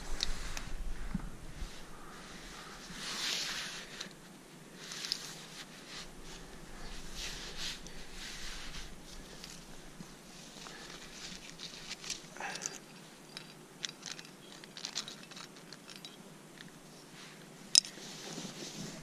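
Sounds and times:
carabiner clicking: 10.9 - 16.7, 17.7 - 18.0.

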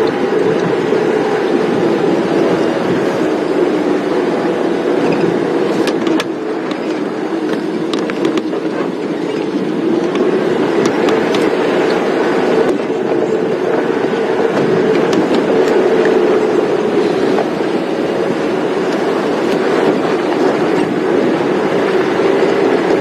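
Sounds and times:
vehicle engine and road noise: 0.0 - 23.0.

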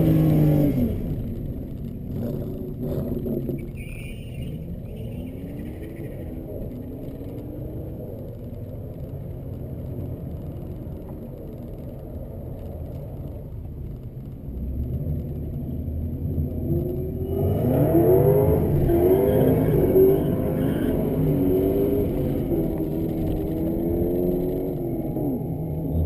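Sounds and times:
engine revving: 0.0 - 8.0, 14.5 - 26.0
car engine idling: 0.0 - 26.0.

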